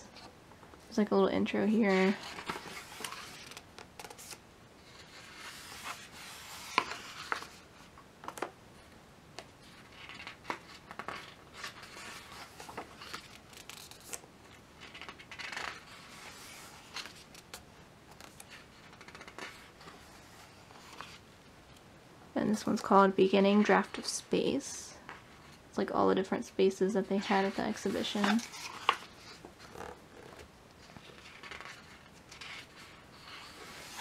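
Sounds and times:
book pages turning: 0:02.0 - 0:07.6, 0:09.8 - 0:14.2, 0:14.8 - 0:21.2, 0:27.4 - 0:34.0.

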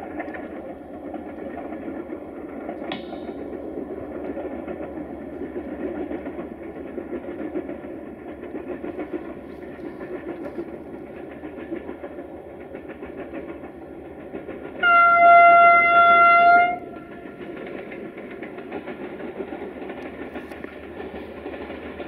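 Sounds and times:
distant diesel locomotive running: 0:00.0 - 0:22.0
loud train horn blast: 0:14.8 - 0:16.9.

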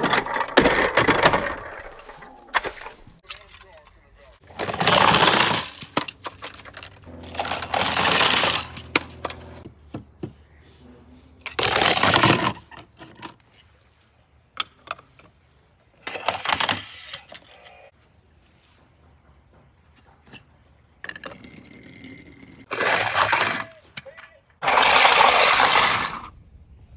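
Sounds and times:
toys rattling: 0:00.0 - 0:02.4, 0:03.2 - 0:10.3, 0:11.4 - 0:13.7, 0:16.0 - 0:17.9, 0:21.0 - 0:26.3.

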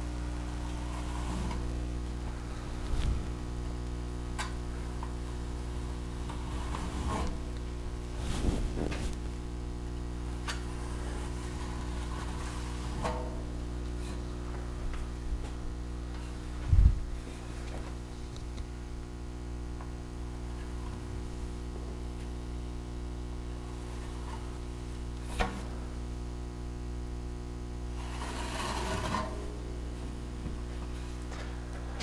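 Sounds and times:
steady electrical hum: 0:00.0 - 0:32.0
knife scraping wet wall texture: 0:28.0 - 0:29.5.

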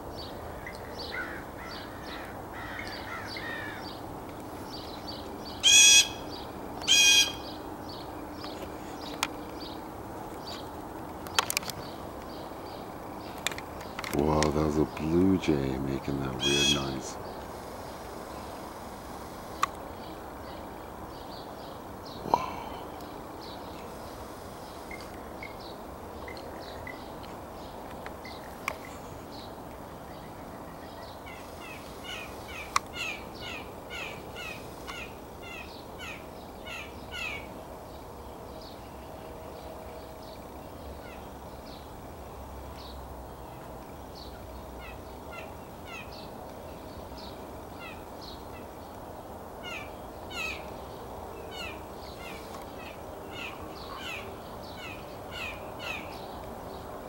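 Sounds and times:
blue jays calling: 0:00.0 - 0:17.4, 0:44.8 - 0:57.0.

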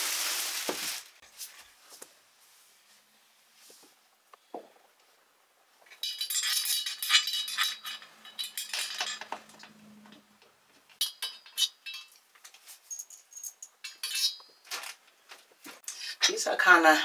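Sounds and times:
metal hardware clinking: 0:05.9 - 0:10.2, 0:10.9 - 0:15.0.

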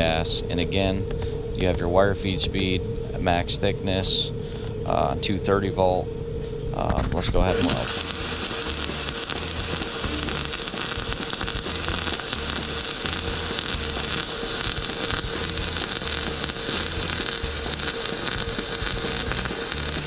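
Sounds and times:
welding arc crackling hiss: 0:06.8 - 0:20.0
background music with beat: 0:07.9 - 0:20.0.

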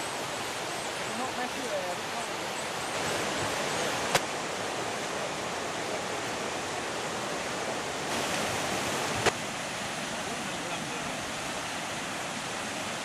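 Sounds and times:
whitewater river rushing: 0:00.0 - 0:13.0.

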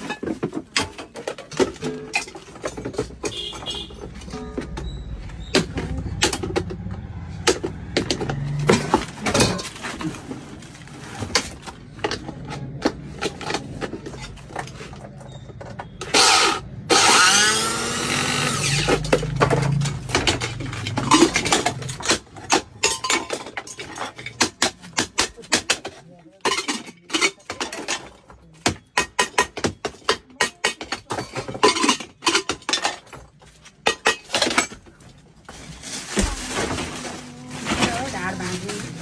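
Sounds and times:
metal tools clattering on workbench: 0:00.0 - 0:39.0
mixer grinder motor whining: 0:16.2 - 0:18.8.

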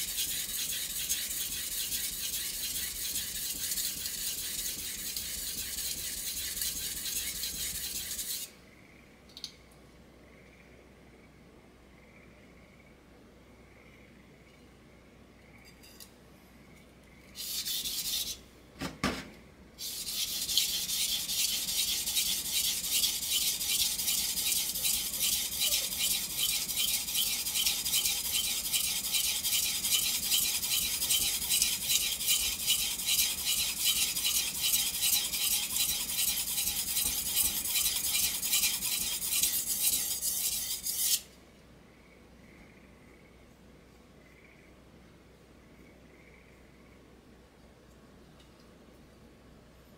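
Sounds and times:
knife scraping on whetstone: 0:00.0 - 0:08.5, 0:17.4 - 0:18.4, 0:19.8 - 0:41.3.

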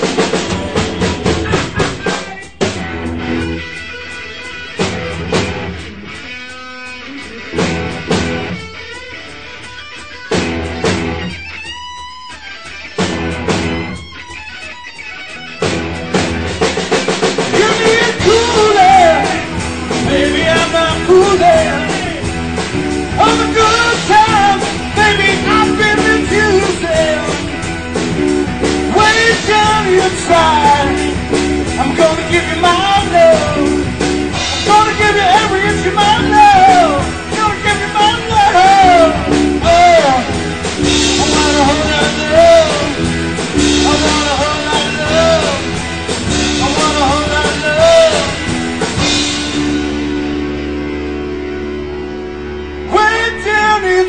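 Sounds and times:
bass guitar: 0:00.0 - 0:54.0
drum kit: 0:00.0 - 0:54.0
electric guitars: 0:00.0 - 0:54.0
lead vocal singing: 0:17.3 - 0:49.6, 0:52.8 - 0:54.0.

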